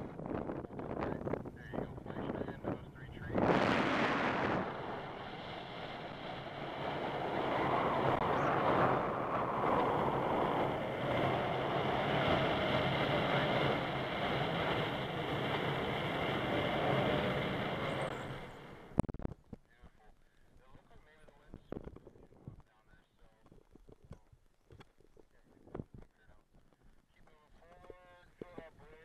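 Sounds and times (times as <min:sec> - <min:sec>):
wind rushing over microphone: 0:00.0 - 0:19.2.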